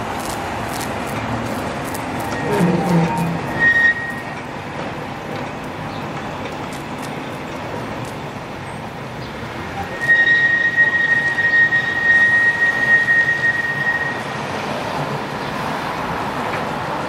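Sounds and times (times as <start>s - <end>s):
tram rumbling on track: 0.0s - 17.0s
tram wheels squealing: 1.8s - 6.4s, 8.5s - 16.8s.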